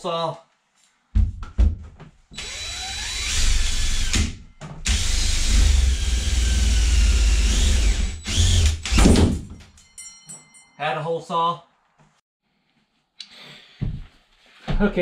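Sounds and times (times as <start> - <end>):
power drill motor whining: 2.4 - 4.2, 4.8 - 9.0.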